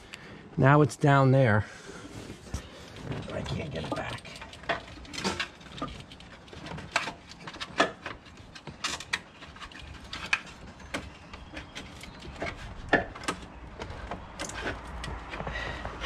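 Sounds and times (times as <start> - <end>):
metallic clinks and scrapes: 2.6 - 12.9.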